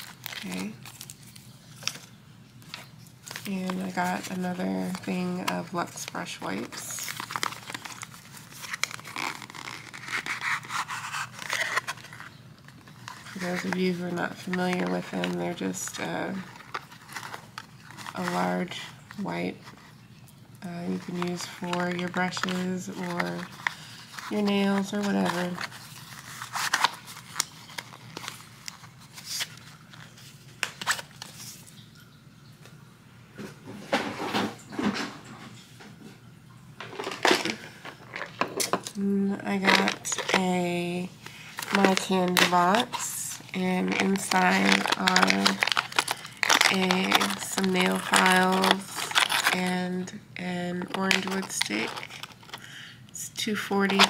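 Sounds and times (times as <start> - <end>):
hands handling small boxes: 0.0 - 18.8, 20.9 - 31.6, 36.8 - 49.7, 50.8 - 52.7
cardboard scraping and rubbing: 6.6 - 12.3, 21.0 - 31.6.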